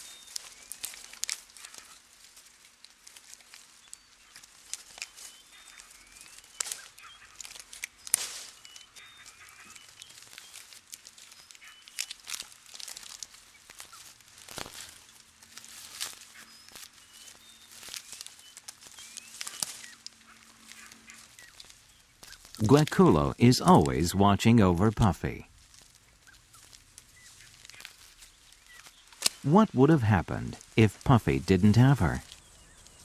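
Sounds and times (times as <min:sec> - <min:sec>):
leaves and twigs rustling: 0:00.0 - 0:24.0, 0:25.4 - 0:29.5, 0:30.5 - 0:30.8, 0:32.1 - 0:33.0
faint bird chirps: 0:03.7 - 0:12.4, 0:14.7 - 0:22.7.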